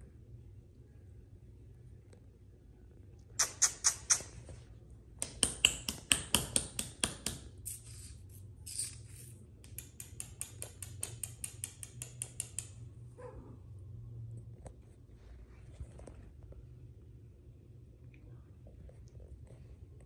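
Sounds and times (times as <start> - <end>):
kitten licking paw: 3.4 - 4.6.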